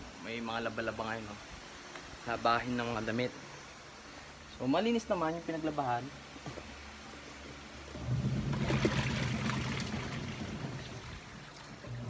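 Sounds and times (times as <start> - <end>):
steady low hum: 0.0 - 12.0
water running and splashing: 7.9 - 12.0.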